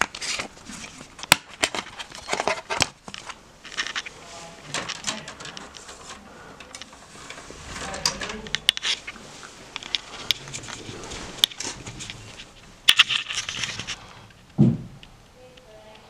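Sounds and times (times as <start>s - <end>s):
rustling: 0.0s - 16.0s
short dull thump: 14.6s - 15.0s.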